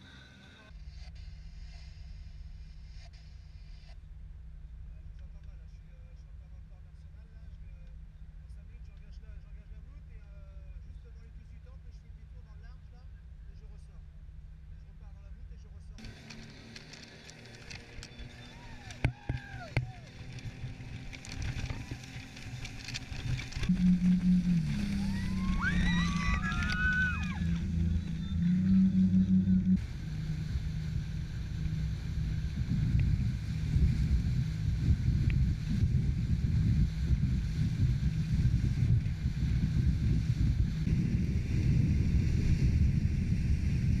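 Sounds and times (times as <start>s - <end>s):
speedboat engine: 16.0s - 41.5s
boat wake and spray rushing: 16.0s - 44.0s
wind and water noise: 16.0s - 44.0s
high rising whoops: 18.3s - 20.2s, 24.0s - 29.7s.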